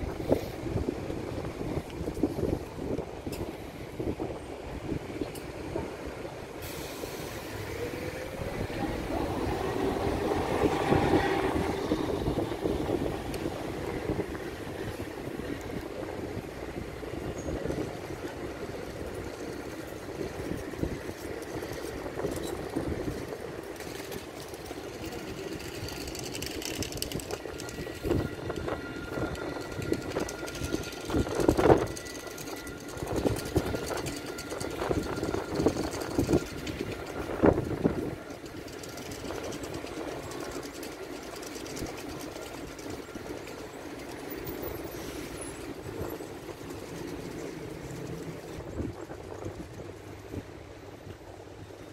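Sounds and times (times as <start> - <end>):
tram rolling on rails: 0.0 - 51.9
tram wheels knocking and clacking: 0.0 - 51.9.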